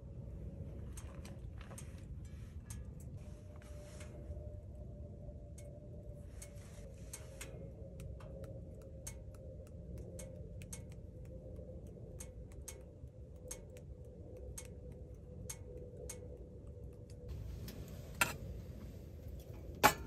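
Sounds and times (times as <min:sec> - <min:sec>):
low steady rumble: 0:00.0 - 0:20.0
wood fire crackling: 0:17.2 - 0:20.0.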